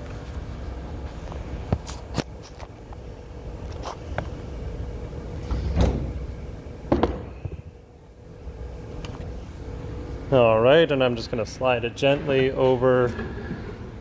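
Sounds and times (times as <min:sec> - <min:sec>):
machine shop hum: 0:00.0 - 0:14.0
handling knocks: 0:06.9 - 0:07.6
heavy thud: 0:06.9 - 0:07.7.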